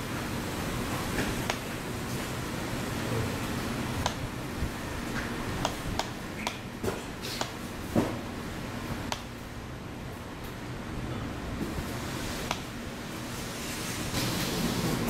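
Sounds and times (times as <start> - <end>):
room ambience hiss: 0.0 - 15.0
small sharp clicks and taps: 9.1 - 9.3.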